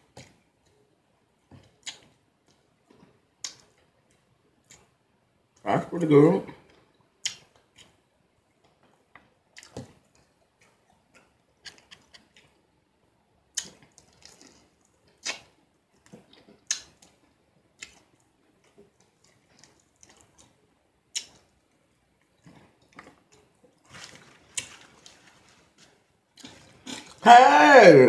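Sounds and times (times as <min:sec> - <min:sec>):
mouth clicks and lip smacks: 0:01.6 - 0:03.8, 0:06.7 - 0:08.0, 0:08.6 - 0:12.6, 0:13.5 - 0:21.6.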